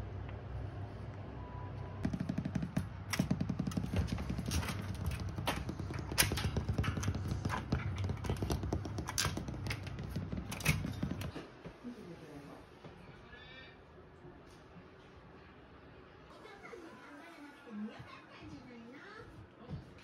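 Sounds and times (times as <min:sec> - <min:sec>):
puppy claws clicking on floor: 0:02.0 - 0:11.4.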